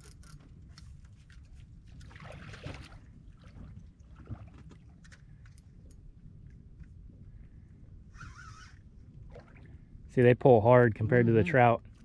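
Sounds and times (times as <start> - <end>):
rod and reel clicks: 0.0 - 0.9
low steady rumble: 0.0 - 12.0.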